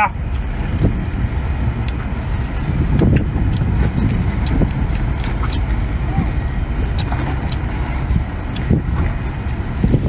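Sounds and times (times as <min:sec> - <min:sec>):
steady low rumble: 0:00.0 - 0:10.0
shell crunching and cracking: 0:03.1 - 0:05.8.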